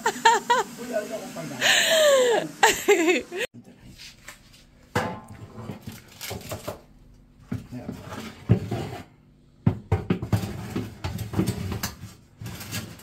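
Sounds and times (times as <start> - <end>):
metal tray scraping on oven rack: 10.3 - 13.0.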